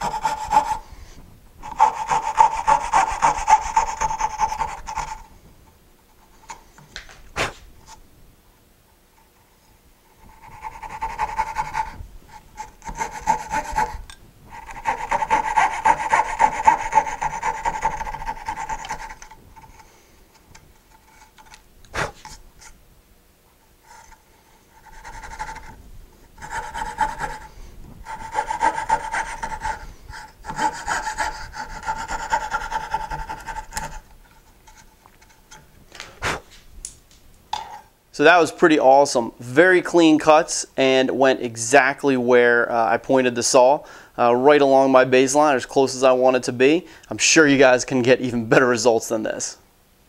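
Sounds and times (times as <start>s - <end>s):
fretsaw sawing wood: 0.0s - 0.9s, 1.6s - 5.3s, 10.2s - 20.0s, 23.8s - 25.8s, 26.4s - 34.0s.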